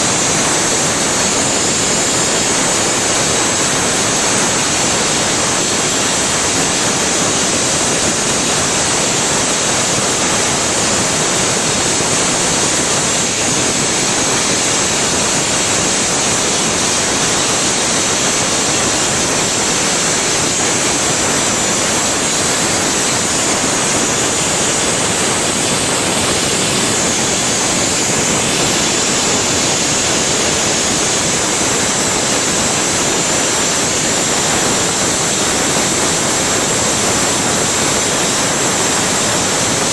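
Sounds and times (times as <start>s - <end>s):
burner flame hissing: 0.0s - 39.9s.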